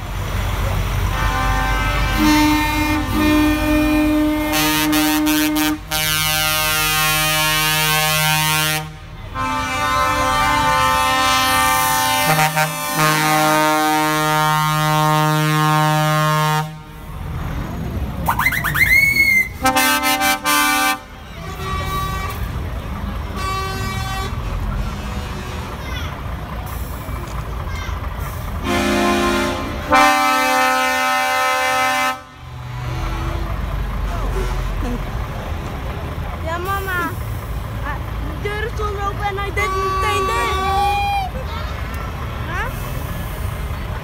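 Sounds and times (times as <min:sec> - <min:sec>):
truck engines running: 0:00.0 - 0:44.0
truck air horns blowing: 0:01.0 - 0:17.3, 0:18.3 - 0:25.8, 0:28.2 - 0:35.0, 0:39.4 - 0:41.3.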